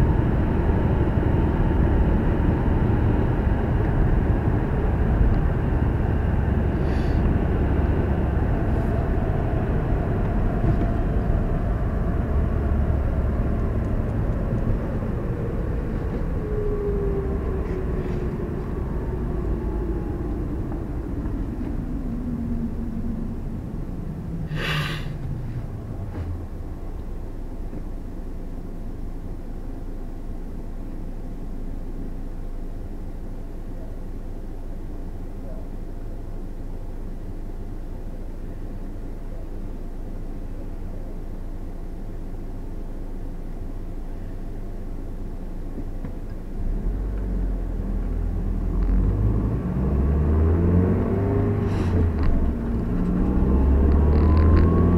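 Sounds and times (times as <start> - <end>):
road and engine rumble: 0.0 - 54.9.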